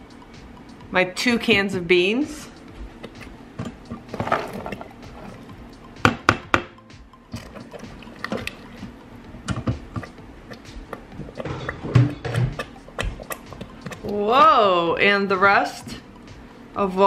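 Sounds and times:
spoon stirring in metal pot: 3.0 - 5.6, 7.3 - 14.5
sharp knocks on metal pot: 6.0 - 6.8.

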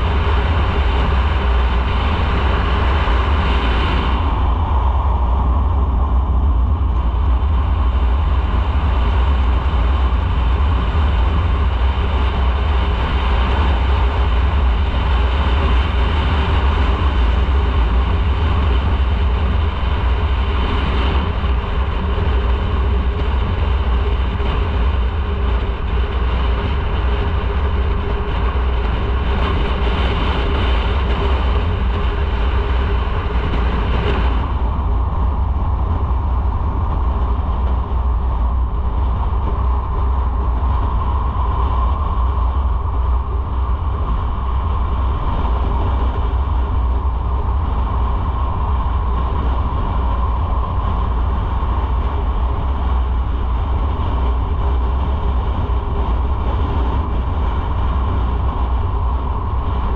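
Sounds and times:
motorcycle engine drone: 0.0 - 59.9
wind rumble on microphone: 0.0 - 59.9.

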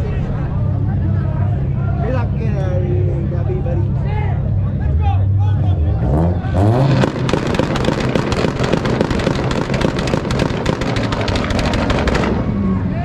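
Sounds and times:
car engine revving: 0.2 - 13.0
exhaust pops and bangs: 6.8 - 12.6.

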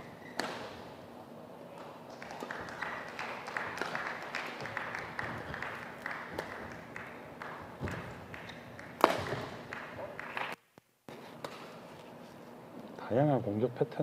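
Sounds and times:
shoes squeaking on court: 0.0 - 0.8, 7.8 - 9.6
racket hitting shuttlecock: 0.2 - 0.9, 6.3 - 10.6.

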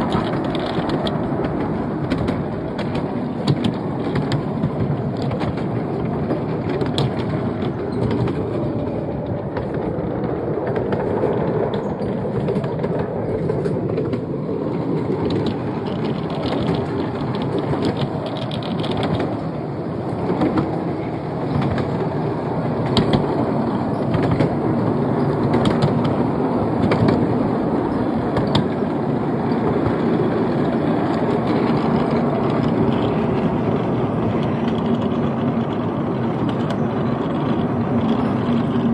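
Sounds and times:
clicks at rail joints: 0.0 - 38.9
wheels rumbling on rail: 0.0 - 38.9.

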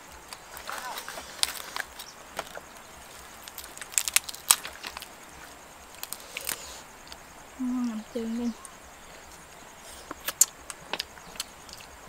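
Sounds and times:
crisp duck skin crackling: 0.3 - 7.2
person humming: 7.6 - 8.1.

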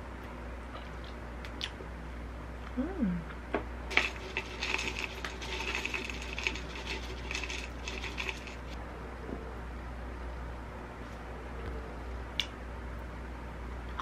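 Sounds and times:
granola rattling into plastic cup: 3.9 - 8.8.

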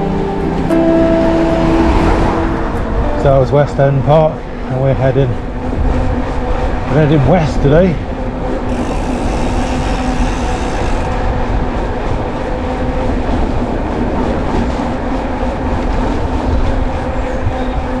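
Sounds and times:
tyres humming on tarmac: 0.0 - 18.0
wind rumbling on microphone: 0.0 - 18.0.

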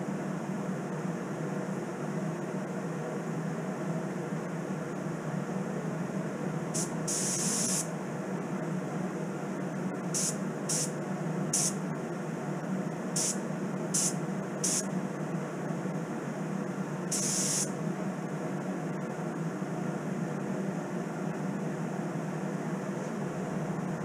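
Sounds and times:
steady low hum: 0.0 - 24.0
spray gun hissing: 6.8 - 7.9, 10.2 - 10.9, 11.6 - 11.8, 13.2 - 14.8, 17.1 - 17.7.

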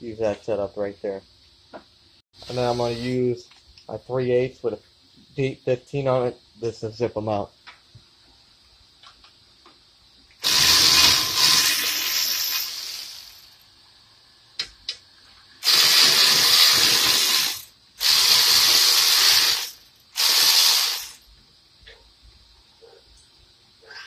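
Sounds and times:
power ratchet spinning out bolts: 10.4 - 13.6, 15.6 - 21.3.

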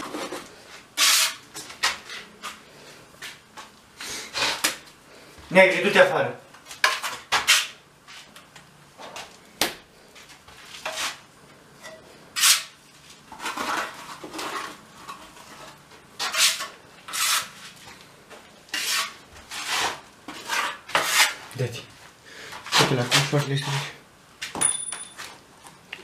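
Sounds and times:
hard objects clattering and scraping: 11.8 - 17.6.

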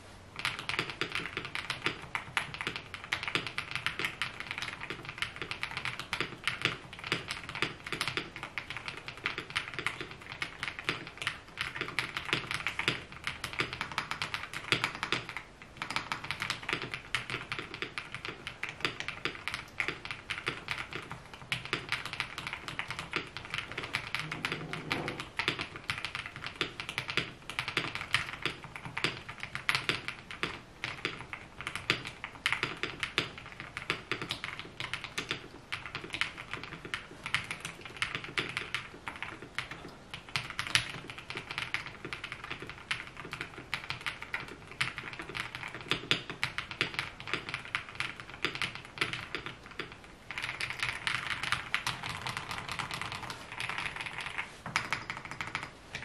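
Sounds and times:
mechanical keyboard typing: 0.4 - 56.0.

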